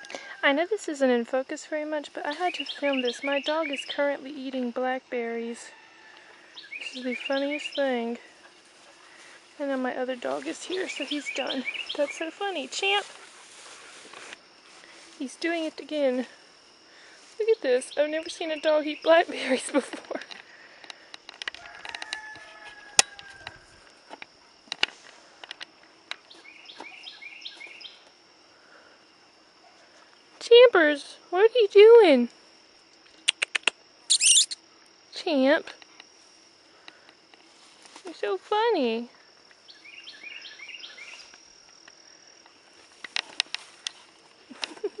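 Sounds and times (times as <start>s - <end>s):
insects droning: 0.0s - 45.0s
high insect buzz: 31.5s - 45.0s
sharp clicks: 33.2s - 34.6s
repeated chirps: 34.1s - 34.6s.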